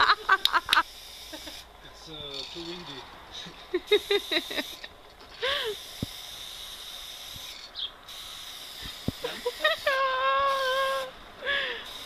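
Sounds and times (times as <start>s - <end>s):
spray-paint can hissing: 0.5s - 1.7s, 3.9s - 4.9s, 5.7s - 11.1s.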